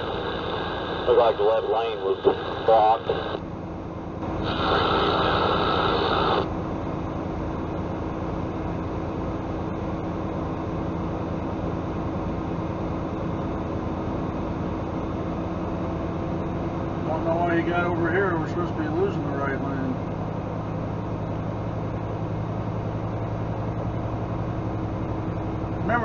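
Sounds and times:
radio static: 0.0s - 3.4s, 4.2s - 6.5s
diesel truck engine drone: 0.0s - 26.0s
road noise: 11.5s - 26.0s.

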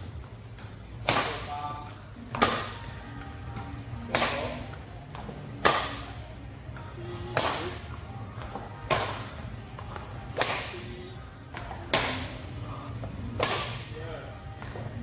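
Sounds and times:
rackets smacking shuttlecock: 0.6s - 1.5s, 10.3s - 10.9s, 13.3s - 13.9s.

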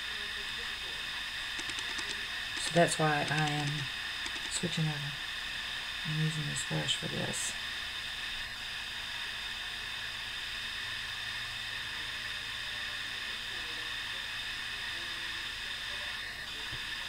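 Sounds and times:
faint low hum: 0.1s - 5.3s.

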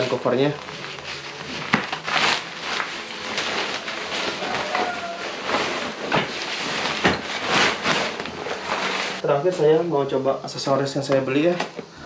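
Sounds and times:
fabric cover rustling: 0.0s - 9.2s.

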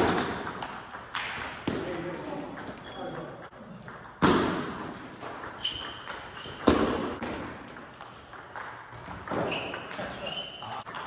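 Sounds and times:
shoe squeaks: 2.8s - 3.2s, 5.5s - 6.7s, 9.3s - 10.9s
ping pong ball knocks echoing: 5.4s - 10.0s.

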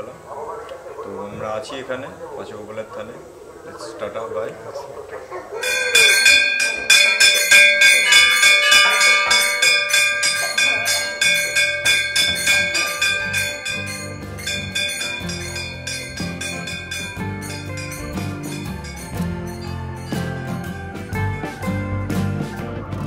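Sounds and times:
hand cymbals clashing: 5.6s - 21.3s.

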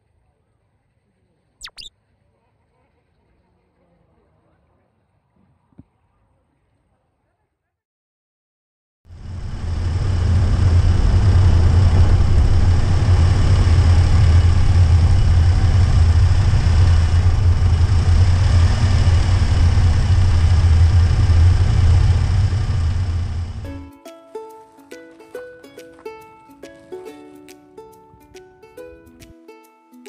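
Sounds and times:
road noise: 9.1s - 23.8s
van engine running: 9.1s - 23.8s.

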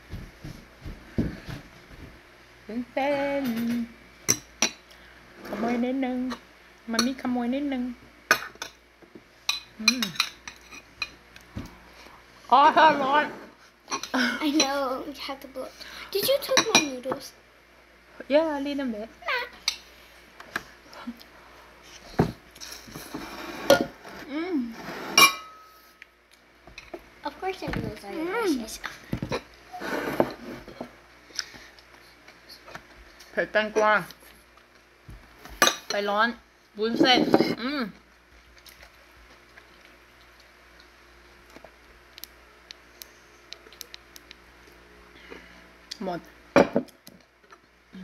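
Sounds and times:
low steady hum: 0.0s - 48.0s.

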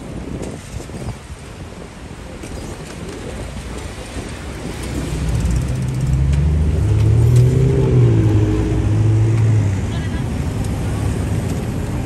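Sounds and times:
vehicle engine humming: 4.6s - 12.0s.

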